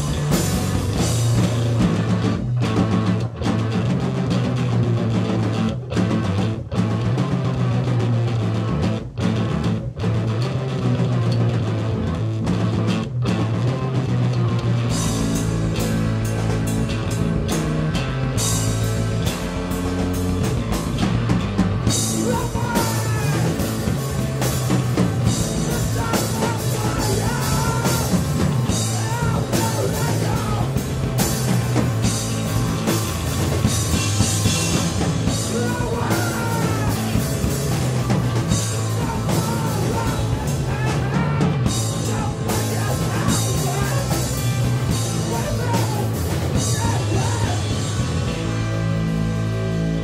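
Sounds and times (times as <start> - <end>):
drum kit with crashing cymbals: 0.0 - 3.1, 14.9 - 50.0
live rock band playing: 0.0 - 50.0
singing and yelled vocals: 21.8 - 32.9, 33.6 - 48.4.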